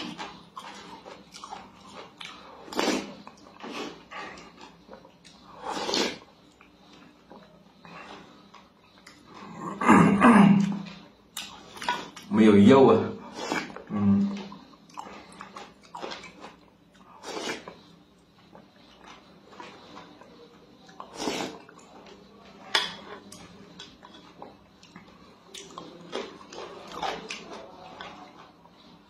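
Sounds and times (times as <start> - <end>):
mouth eating sounds: 0.0 - 7.5, 9.0 - 12.3, 13.2 - 18.0, 18.6 - 22.1.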